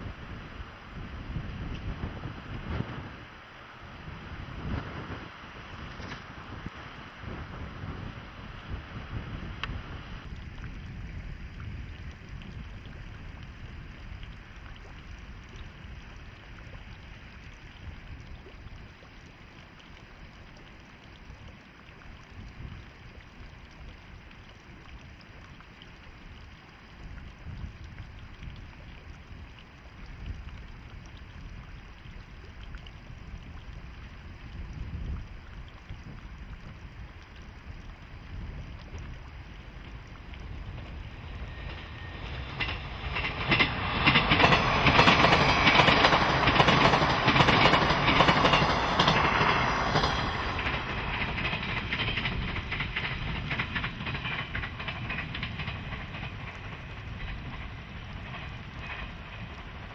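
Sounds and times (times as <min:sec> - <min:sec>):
wind buffeting microphone: 0:00.0 - 0:16.9, 0:32.9 - 0:59.9.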